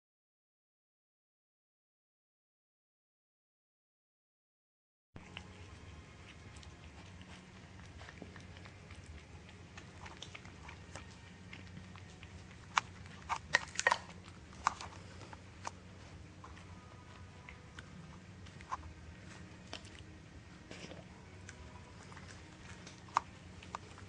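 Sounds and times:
cat chewing and lip-smacking: 5.2 - 24.0
steady low hum: 5.2 - 24.0.

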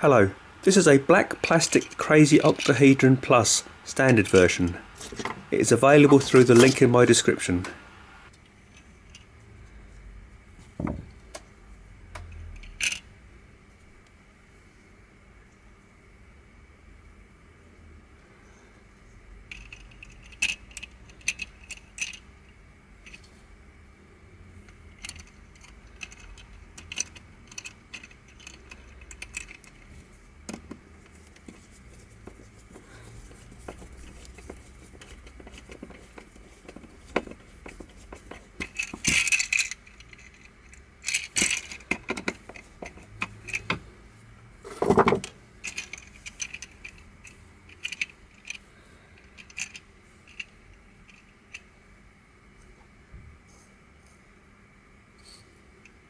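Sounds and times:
plastic pieces rattling clatter: 25.0 - 29.9, 33.6 - 43.8, 44.8 - 48.6.

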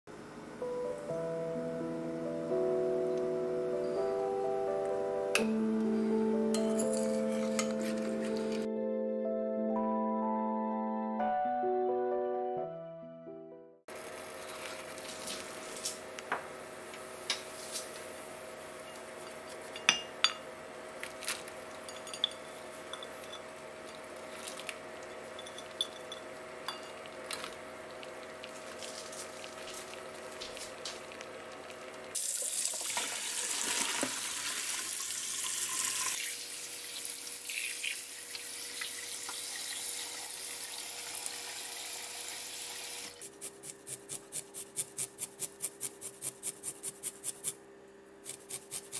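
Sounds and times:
water simmering in a pot: 26.3 - 43.1
tap water running into a colander: 27.2 - 43.1
water pouring: 28.0 - 41.9.

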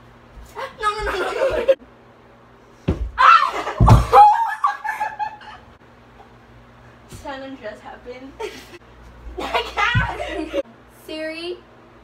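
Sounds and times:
heavy thumps on floor: 2.8 - 3.2, 9.8 - 10.4
girls laughing and shrieking: 3.2 - 5.6, 9.4 - 10.6.

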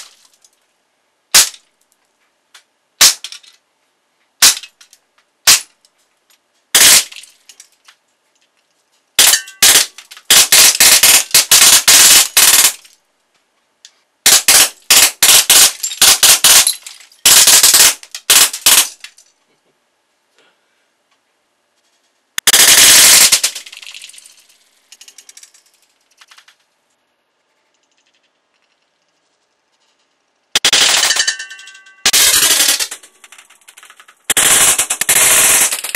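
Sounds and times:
bb gun rapid fire: 1.3 - 1.6, 4.4 - 4.7, 5.4 - 5.7, 6.8 - 7.3, 9.2 - 12.9, 14.2 - 19.1, 22.4 - 24.4, 30.6 - 35.9.

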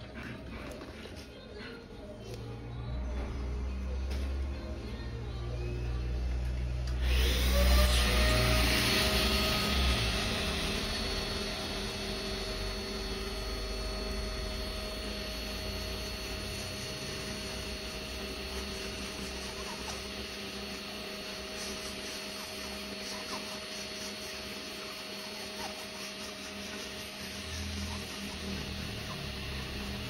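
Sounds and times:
electric nail drill whining: 6.8 - 30.0.

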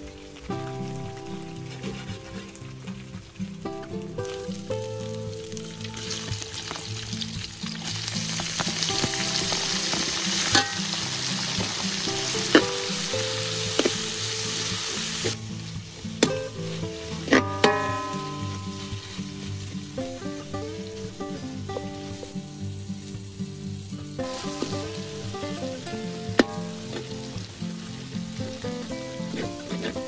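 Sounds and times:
food sizzling in hot oil: 0.0 - 30.0
metal ladle scraping a wok: 1.5 - 2.6, 29.3 - 30.0.

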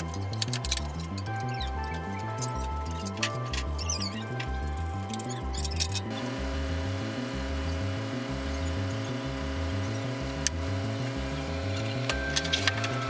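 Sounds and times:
music with repeating beat: 0.0 - 13.0.

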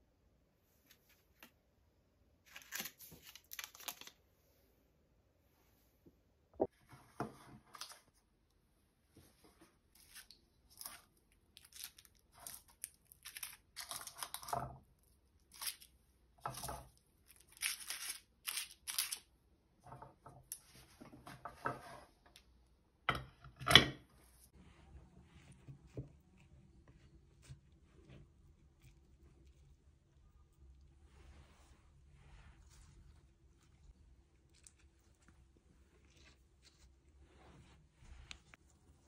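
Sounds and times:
paper liners crinkling: 2.5 - 4.2.

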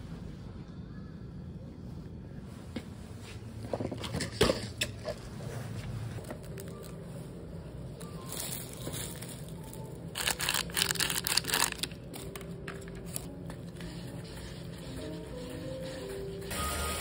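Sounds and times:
plastic food packet crinkling: 10.2 - 12.5.

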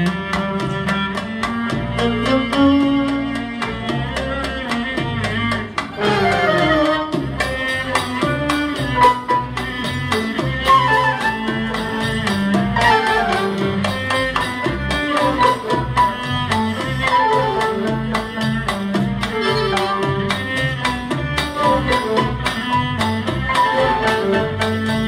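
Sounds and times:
amplified cello: 0.0 - 25.0
percussion beat: 0.0 - 25.0
string section: 0.0 - 25.0.

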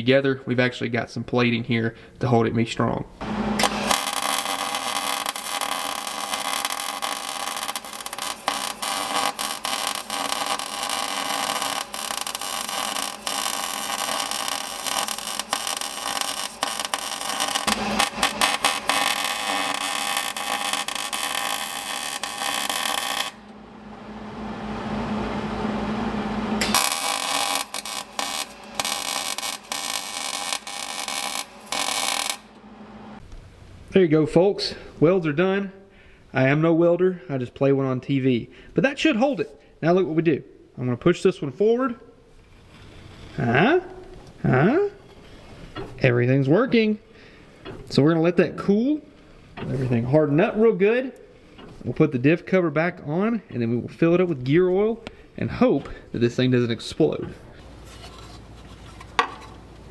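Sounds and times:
arc welder crackling: 3.2 - 24.8, 25.4 - 33.8.

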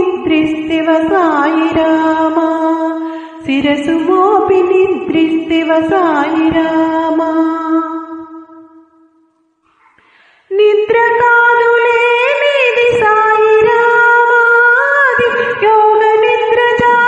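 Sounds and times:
wordless devotional singing: 9.8 - 17.0.

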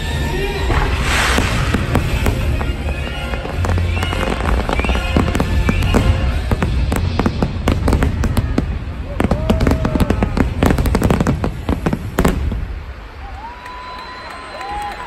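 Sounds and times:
show music over loudspeakers: 0.0 - 8.0
fireworks bursting: 0.0 - 13.5.

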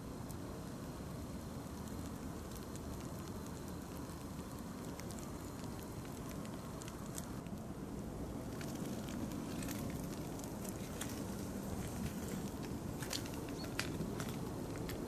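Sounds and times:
light ticks and crackles: 0.0 - 15.0.

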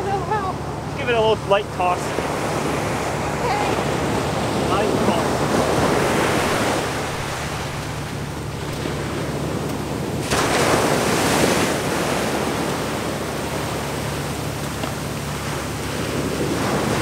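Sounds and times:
ocean surf breaking: 0.0 - 17.0.

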